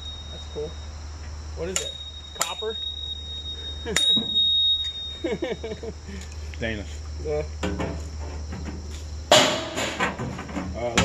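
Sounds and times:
high steady tone: 0.0s - 6.3s
insects trilling: 0.0s - 11.0s.

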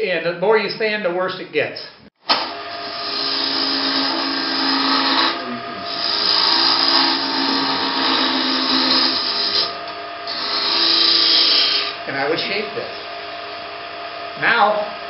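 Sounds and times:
lathe gouge cutting wood: 2.4s - 13.1s.

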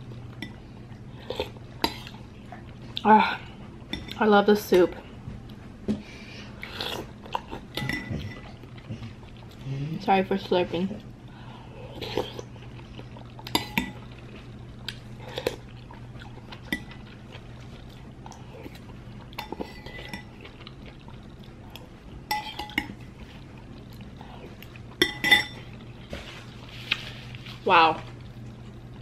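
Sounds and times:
steady low hum: 0.0s - 29.0s
metal spoon clinking on ceramic bowl: 25.0s - 25.6s.

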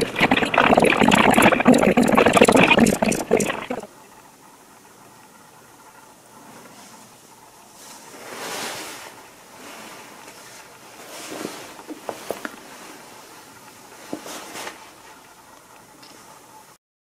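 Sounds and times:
clothing fabric rustling: 7.7s - 13.3s.

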